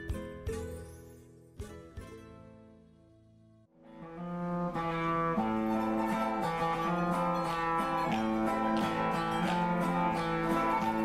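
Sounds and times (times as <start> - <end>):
acoustic guitar: 0.0 - 11.0
small strummed string instrument: 0.0 - 11.0.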